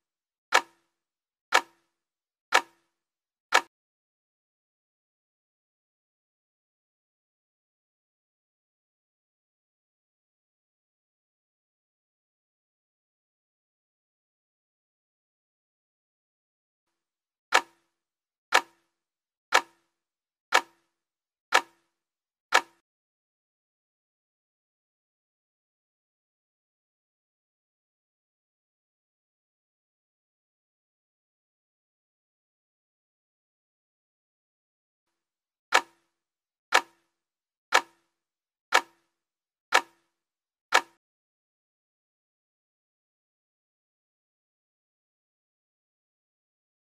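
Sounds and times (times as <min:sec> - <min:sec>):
timer ticks with low ring: 0:00.5 - 0:03.7, 0:17.5 - 0:22.8, 0:35.7 - 0:41.0.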